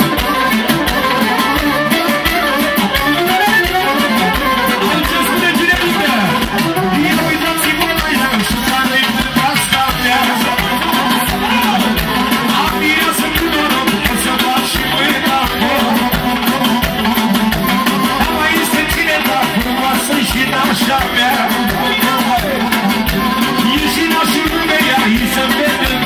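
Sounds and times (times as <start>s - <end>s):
live amplified band music: 0.0s - 26.0s
man singing into a microphone: 4.7s - 16.8s, 17.9s - 26.0s.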